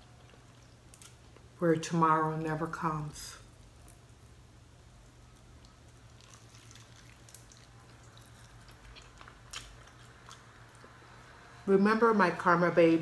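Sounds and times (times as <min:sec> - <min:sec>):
person chewing and smacking: 0:00.0 - 0:01.5, 0:05.2 - 0:11.0
low steady hum: 0:00.0 - 0:13.0.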